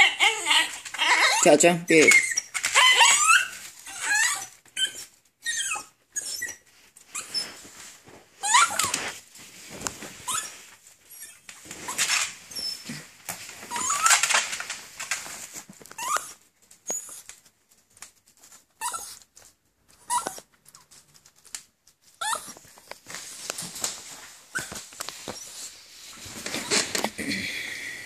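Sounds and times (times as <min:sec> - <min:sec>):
small dog whimpering: 0:00.0 - 0:07.6, 0:08.4 - 0:09.0, 0:16.0 - 0:17.3, 0:18.8 - 0:19.2, 0:20.0 - 0:20.5, 0:22.2 - 0:22.6
rustling: 0:02.0 - 0:27.8.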